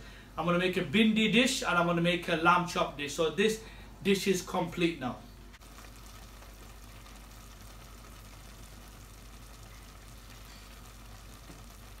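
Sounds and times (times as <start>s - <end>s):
noodles simmering and bubbling: 5.5s - 12.0s.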